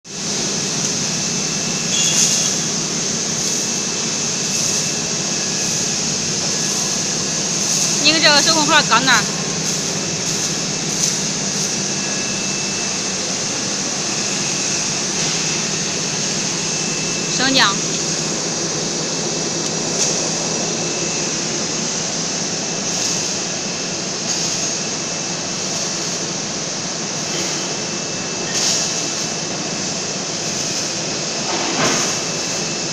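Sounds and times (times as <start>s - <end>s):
industrial machinery hiss and hum: 0.0s - 32.9s
faint high whine: 1.8s - 31.2s.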